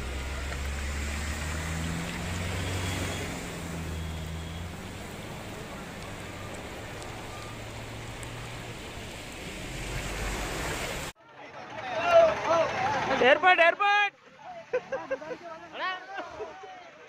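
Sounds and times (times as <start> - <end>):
heavy rain: 0.0 - 11.1
vehicle engine low hum: 0.0 - 11.1
rushing water: 0.0 - 11.2.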